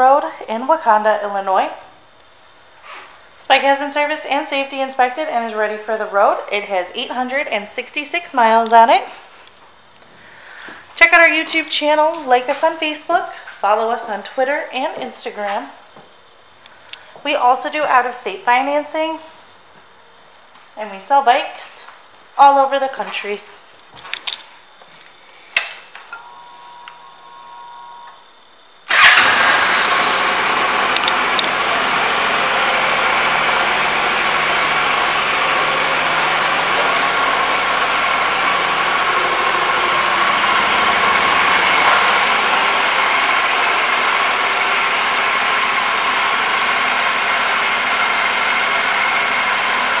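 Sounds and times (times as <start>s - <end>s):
faint steady whine: 0.0s - 29.0s
motorcycle engine starting and idling: 28.9s - 50.0s
click: 30.9s - 31.5s.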